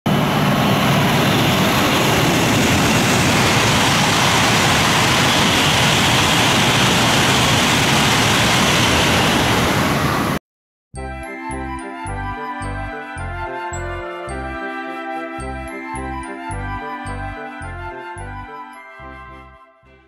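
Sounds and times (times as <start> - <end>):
high-speed train passing: 0.1 - 10.4.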